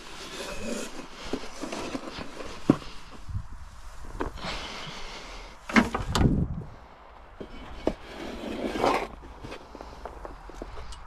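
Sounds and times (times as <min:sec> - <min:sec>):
tool scraping wooden tray: 0:00.0 - 0:03.0, 0:07.4 - 0:10.0
straw rustling: 0:00.0 - 0:06.8.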